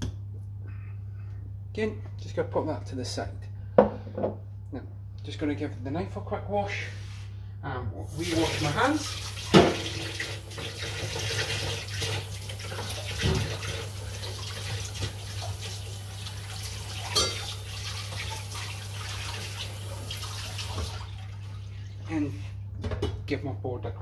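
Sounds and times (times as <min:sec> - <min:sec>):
tap running into sink: 0:09.3 - 0:15.8, 0:19.3 - 0:21.0.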